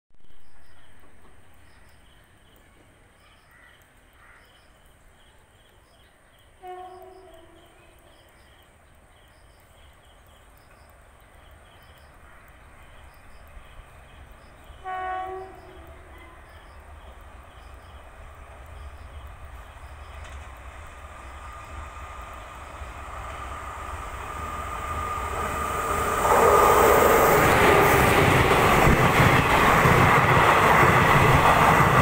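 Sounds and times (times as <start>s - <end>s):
low train rumble: 0.2s - 32.0s
locomotive horn blasts: 6.6s - 8.0s, 14.8s - 16.4s.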